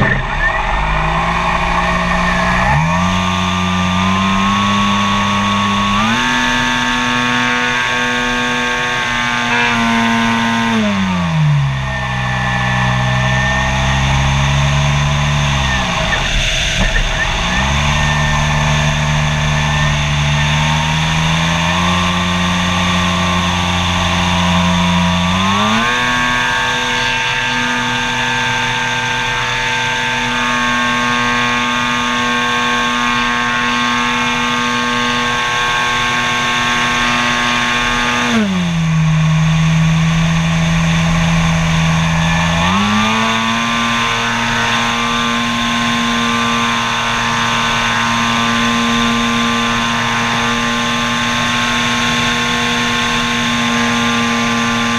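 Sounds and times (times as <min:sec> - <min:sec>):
air rush: 0:00.0 - 0:05.5
model airplane engine: 0:00.0 - 0:54.9.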